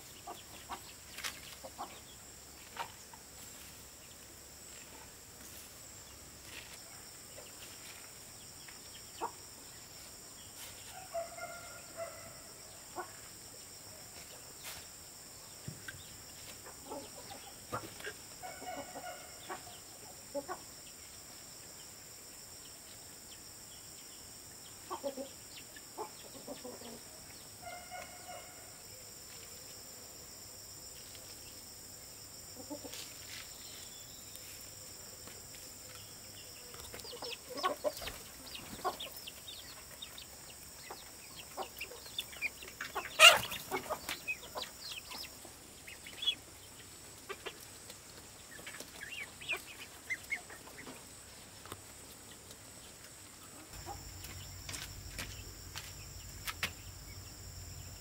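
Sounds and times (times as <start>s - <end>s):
chickens clucking: 0.0s - 5.2s, 9.1s - 9.4s, 12.9s - 13.2s, 15.6s - 20.7s, 24.8s - 28.4s, 32.5s - 33.1s, 36.7s - 52.6s, 53.4s - 57.5s.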